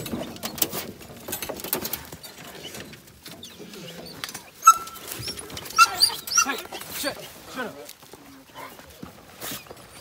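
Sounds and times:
dog yelp: 4.6s - 6.8s.

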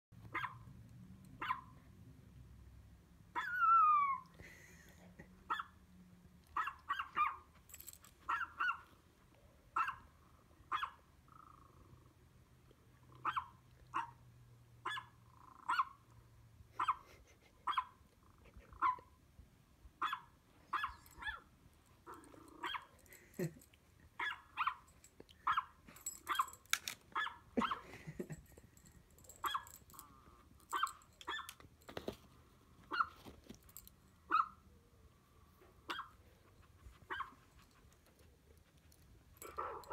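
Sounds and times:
small dog barking through speakers: 0.3s - 0.7s, 1.4s - 1.8s, 6.6s - 7.4s, 10.7s - 11.0s, 13.2s - 14.2s, 14.8s - 16.0s, 20.0s - 21.4s, 34.3s - 34.6s, 35.9s - 36.2s.

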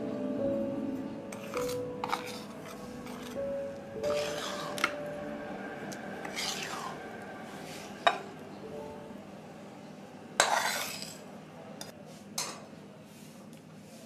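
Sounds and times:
faint background music: 0.0s - 14.0s
spatula scraping a steel pan: 1.3s - 3.4s, 4.0s - 5.0s, 6.2s - 8.2s, 10.4s - 11.2s.

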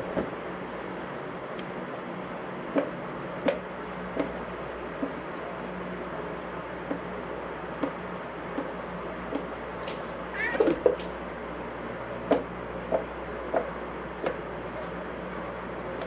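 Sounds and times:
steady low hum: 0.0s - 16.0s
cat meowing: 10.3s - 11.0s.

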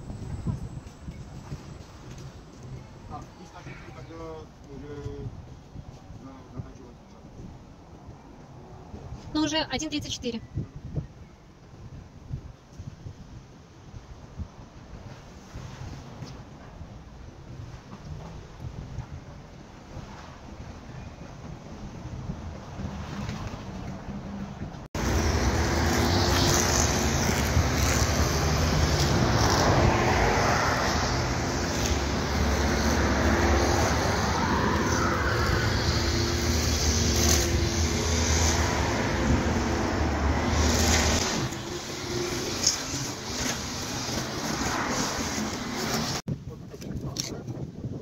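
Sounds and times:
cars passing on a street: 19.6s - 46.3s.

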